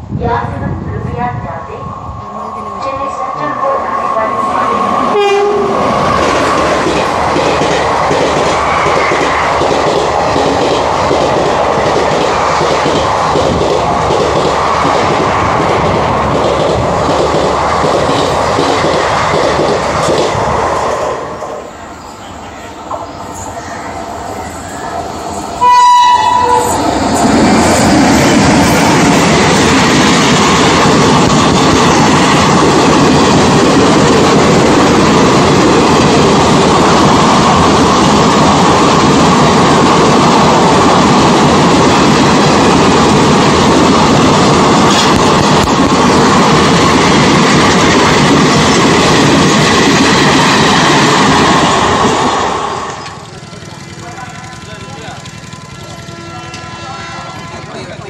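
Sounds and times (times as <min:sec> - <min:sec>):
train horn blast: 0:02.8 - 0:05.8, 0:25.6 - 0:26.8, 0:53.4 - 0:58.0
train wheels clacking over joints: 0:06.1 - 0:20.4, 0:53.0 - 0:56.8.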